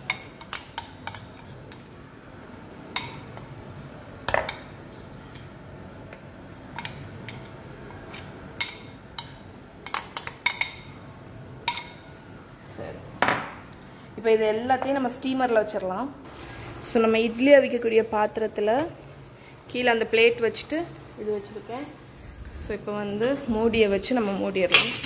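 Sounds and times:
utensils clinking against bowls: 0.0s - 1.9s, 16.4s - 25.0s.

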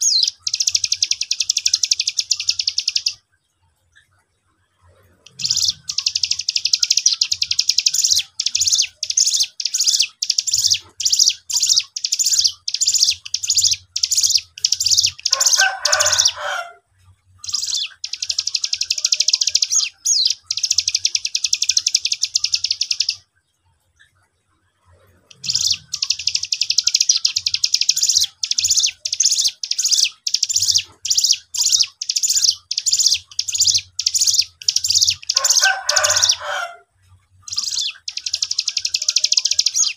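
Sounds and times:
songbird singing buzzy notes: 0.0s - 3.3s, 5.3s - 16.4s, 25.3s - 36.4s.

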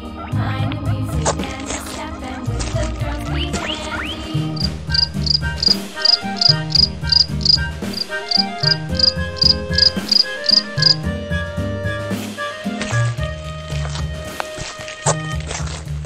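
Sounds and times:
background music with bass: 0.0s - 16.0s
high chirping tick: 4.6s - 11.0s.

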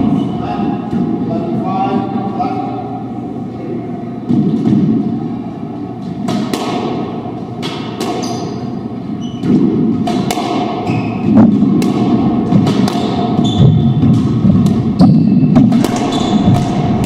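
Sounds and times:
squash ball cracking off rackets and walls: 9.4s - 14.9s, 15.5s - 17.0s
shoes squeaking on hardwood floor: 13.4s - 13.9s.

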